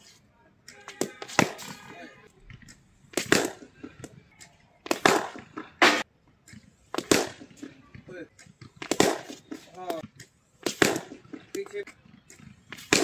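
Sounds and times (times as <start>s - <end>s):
bat striking ball: 0.7s - 2.0s, 3.1s - 4.2s, 4.8s - 7.8s, 8.4s - 13.0s
cricket ball bouncing on concrete: 2.5s - 13.0s.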